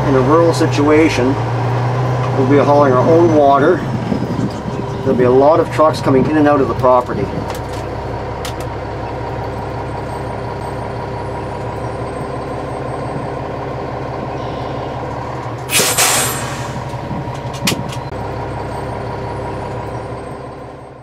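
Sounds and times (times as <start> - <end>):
diesel truck engine running: 0.0 - 21.0
air brakes hissing: 15.6 - 17.0.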